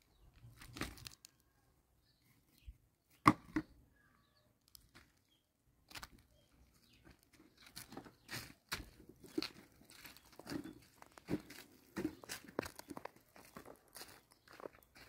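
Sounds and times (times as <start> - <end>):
footsteps on dry leaves and gravel: 0.4 - 1.2, 7.0 - 15.0.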